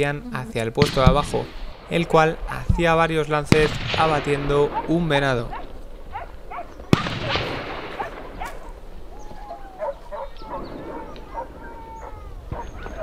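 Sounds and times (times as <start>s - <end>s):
rifle shot: 0.8s - 9.1s
dogs barking and baying: 4.4s - 13.0s
dogs howling: 4.6s - 13.0s.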